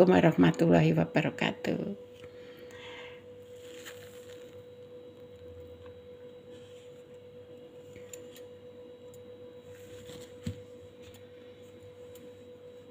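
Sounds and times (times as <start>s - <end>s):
steady hum: 0.0s - 12.9s.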